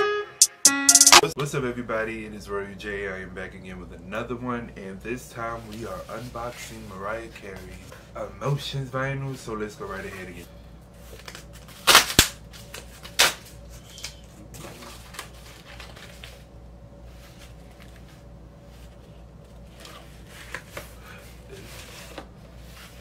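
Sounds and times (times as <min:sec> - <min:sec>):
cardboard tearing: 0:11.2 - 0:13.5.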